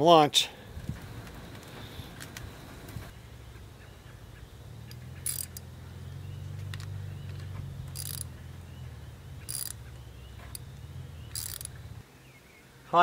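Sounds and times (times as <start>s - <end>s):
low steady hum: 0.6s - 12.9s
ratchet wrench clicking: 4.9s - 5.7s, 7.8s - 8.4s, 9.4s - 12.0s.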